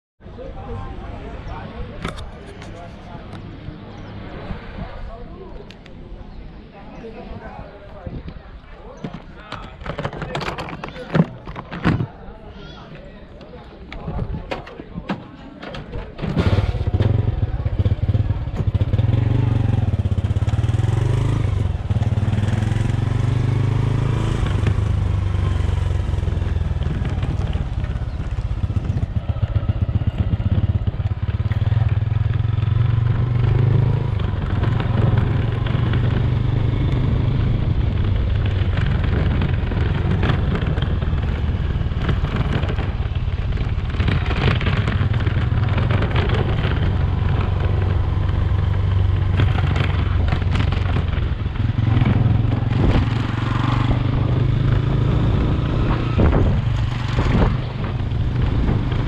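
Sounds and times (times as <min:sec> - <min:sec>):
small motorcycle engine running: 0:16.4 - 0:59.0.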